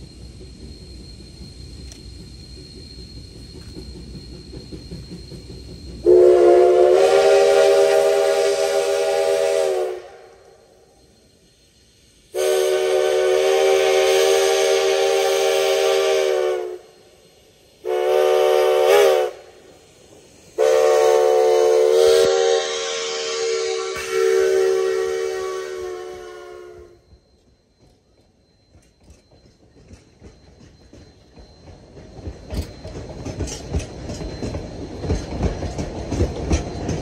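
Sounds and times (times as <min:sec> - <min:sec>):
low rumble of train: 0:00.0 - 0:37.0
steam locomotive whistle blasts: 0:06.0 - 0:27.2.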